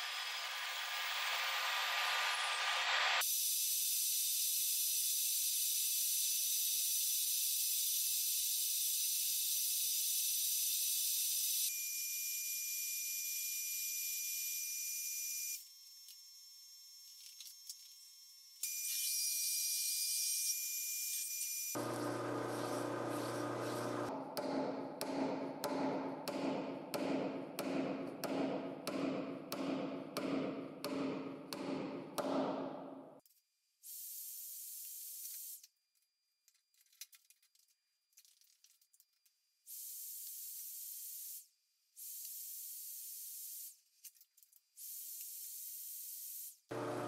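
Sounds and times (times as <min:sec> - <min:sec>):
welding arc hissing: 0:21.8 - 0:24.1
lathe humming: 0:21.8 - 0:24.2, 0:46.7 - 0:47.0.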